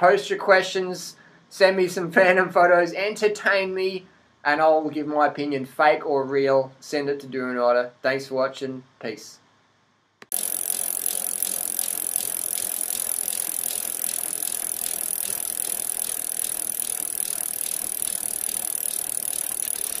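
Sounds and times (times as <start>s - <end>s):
rapid mechanical ticking rattle: 10.2s - 20.0s.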